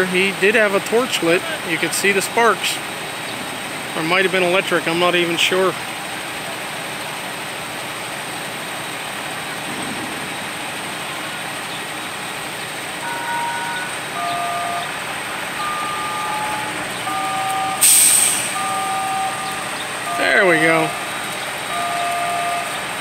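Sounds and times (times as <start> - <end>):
outdoor background noise: 0.0 - 23.0
beeping tones: 13.0 - 23.0
rail tool hissing: 17.6 - 20.0.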